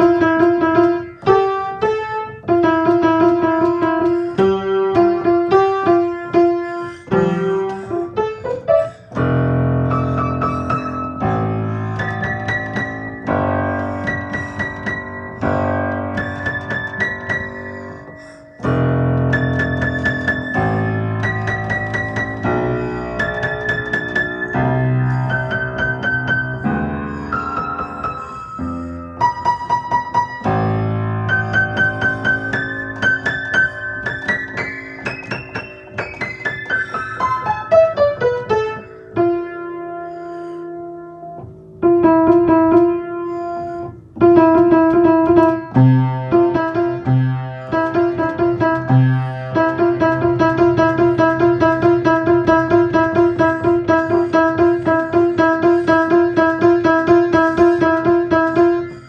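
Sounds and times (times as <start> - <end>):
piano playing: 0.0 - 59.0.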